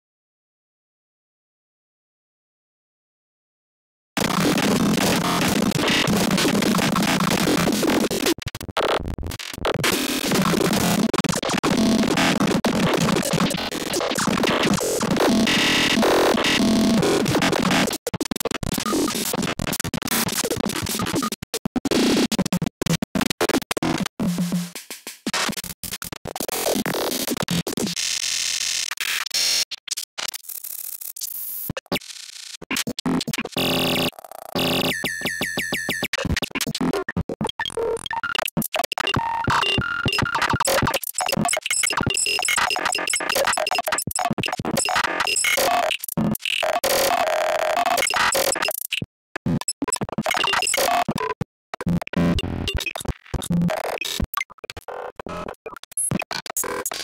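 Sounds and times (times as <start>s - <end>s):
harsh electronic noise music: 37.6s - 51.2s.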